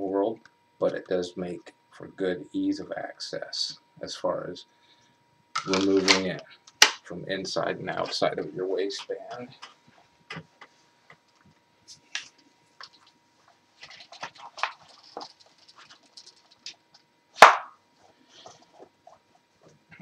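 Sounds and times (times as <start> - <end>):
clothing rustling: 9.6 - 16.7.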